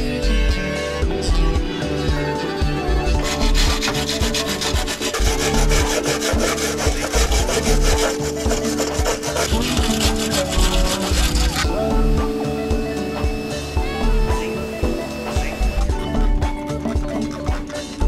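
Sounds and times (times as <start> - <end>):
background music: 0.0 - 18.0
wire brush scrubbing metal: 3.2 - 15.9.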